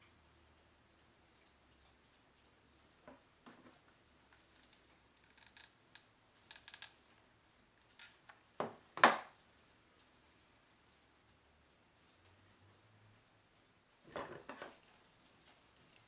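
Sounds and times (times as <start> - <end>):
clicks and rustles of handling: 14.0 - 16.0.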